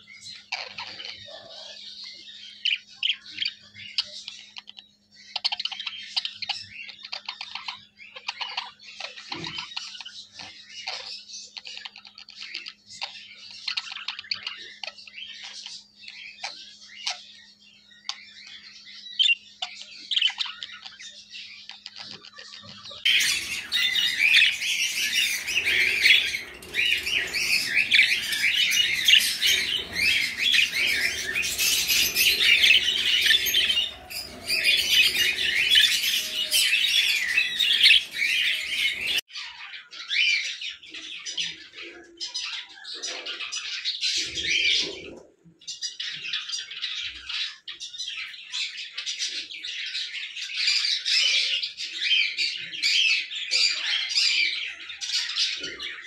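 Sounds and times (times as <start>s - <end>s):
budgerigars chattering: 21.7s - 39.2s.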